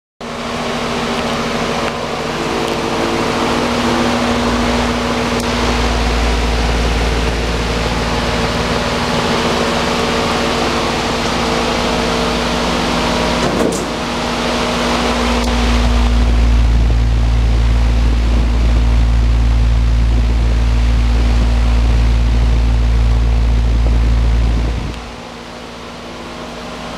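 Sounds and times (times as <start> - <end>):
exhaust fan air rush: 0.2 - 26.9
electric motor hum: 0.3 - 26.9
low rumble: 0.4 - 26.6.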